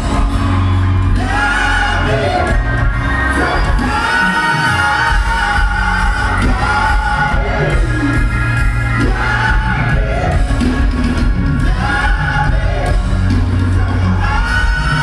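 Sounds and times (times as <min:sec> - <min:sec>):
crowd noise: 0:00.0 - 0:15.0
live soul band: 0:00.0 - 0:15.0
male singers: 0:01.1 - 0:08.3, 0:08.9 - 0:10.5, 0:11.5 - 0:15.0.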